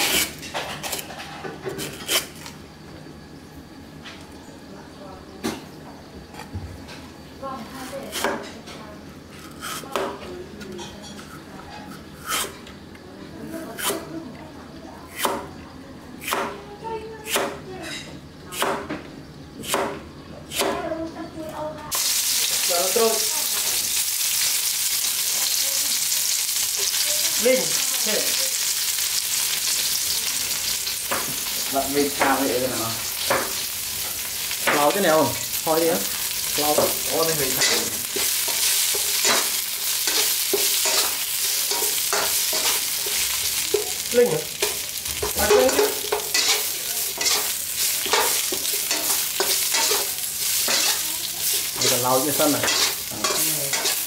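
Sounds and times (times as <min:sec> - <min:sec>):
greens sizzling in a wok: 0:00.0 - 0:15.5, 0:16.2 - 0:54.0
metal spatula scraping pan: 0:37.5 - 0:44.0, 0:44.6 - 0:54.0.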